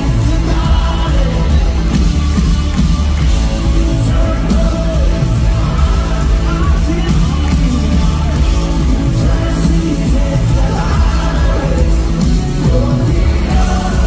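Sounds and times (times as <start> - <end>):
acoustic guitar: 0.0 - 14.0
drums: 0.0 - 14.0
electric guitar: 0.0 - 14.0
person singing: 3.7 - 14.0.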